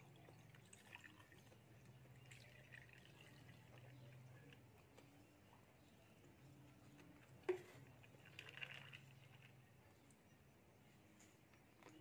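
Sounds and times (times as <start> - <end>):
juice pouring into plastic cup: 0.3 - 4.7, 7.5 - 9.7.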